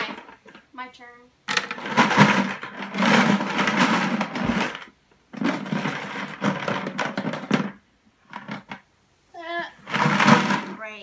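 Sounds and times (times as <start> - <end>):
markers rattling in plastic bucket: 1.5 - 8.8, 9.9 - 10.8.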